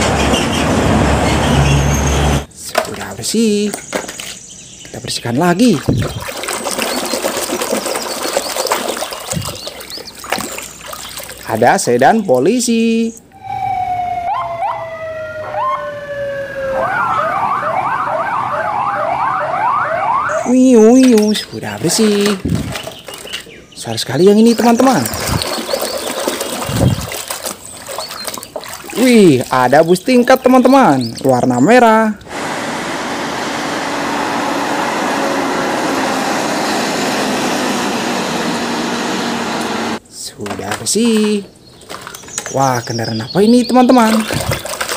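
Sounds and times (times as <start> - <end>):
bus engine humming: 0.0 - 2.5, 32.2 - 40.0
road and traffic noise: 0.0 - 5.7, 6.3 - 44.9
police siren wailing and yelping: 13.3 - 21.2.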